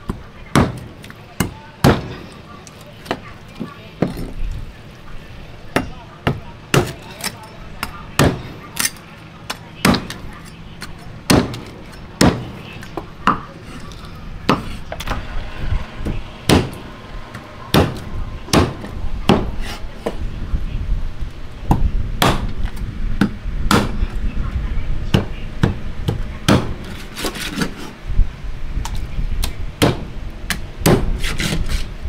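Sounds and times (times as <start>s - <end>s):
cleaver chopping meat and bone: 0.1s - 2.2s, 5.8s - 8.5s, 9.5s - 10.2s, 10.8s - 13.5s, 16.0s - 20.2s, 21.7s - 22.6s, 23.2s - 24.0s, 25.1s - 27.6s, 29.4s - 31.8s.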